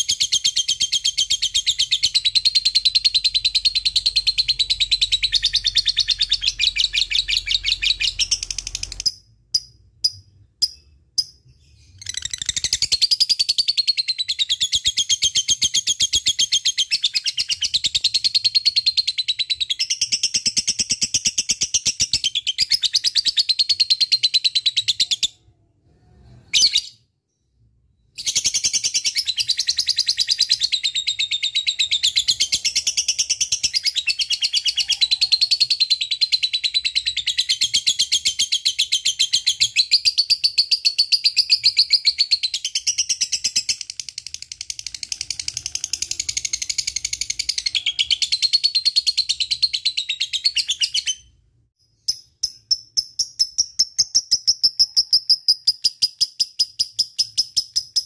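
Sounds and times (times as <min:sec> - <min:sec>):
bird trilling chirps: 0:00.0 - 0:20.2.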